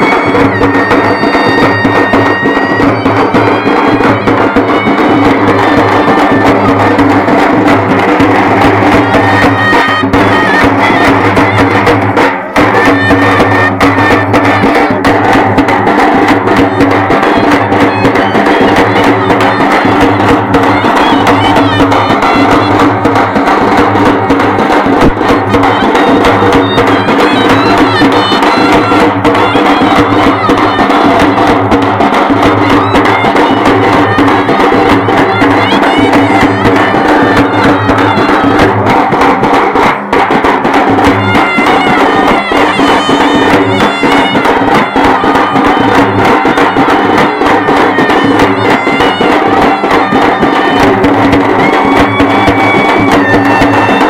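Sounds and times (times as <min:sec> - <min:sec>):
reedy wind instrument melody: 0:00.0 - 0:54.0
rhythmic drumming: 0:00.0 - 0:54.0
sharp percussive strikes: 0:00.0 - 0:54.0.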